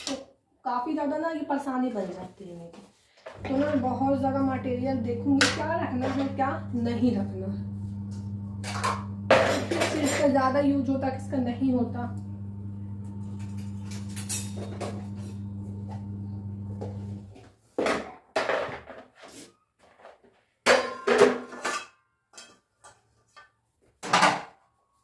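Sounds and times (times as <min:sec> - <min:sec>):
steady low hum: 0:03.4 - 0:17.3
kitchen utensils clattering: 0:08.7 - 0:10.5, 0:20.7 - 0:22.7.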